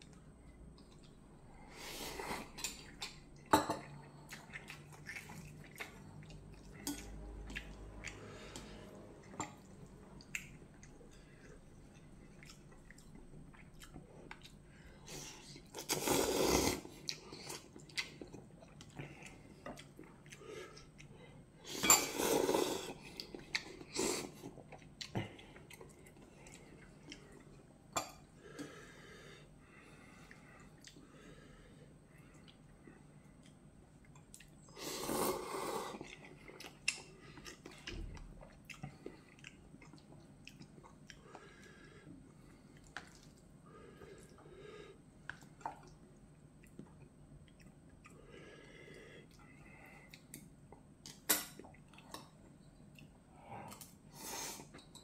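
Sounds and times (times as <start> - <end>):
person chewing: 1.8 - 28.8, 30.2 - 31.0, 32.3 - 44.5, 45.2 - 55.0
slurping noodles: 15.1 - 17.6, 21.7 - 23.2, 34.8 - 36.1.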